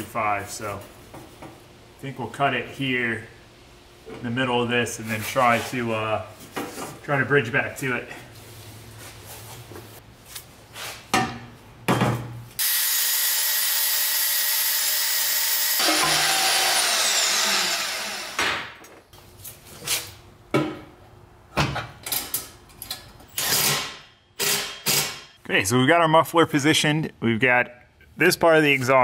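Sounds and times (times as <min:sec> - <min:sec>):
band saw cutting metal pipe: 0:12.6 - 0:18.7.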